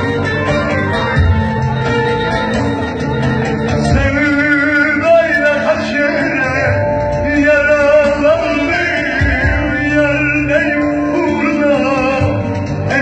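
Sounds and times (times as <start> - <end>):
hand drum: 0.0 - 9.9
small band playing: 0.0 - 13.0
man singing through microphone: 3.8 - 13.0.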